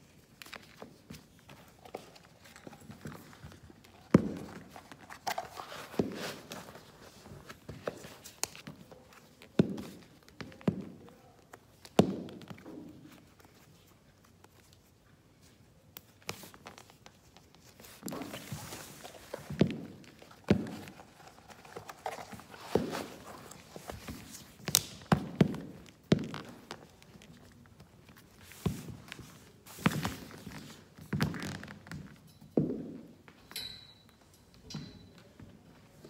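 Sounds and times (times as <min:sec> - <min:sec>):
fabric ribbon rustling: 0:00.0 - 0:10.2, 0:12.9 - 0:31.6
shoes knocking on floor: 0:17.8 - 0:26.8.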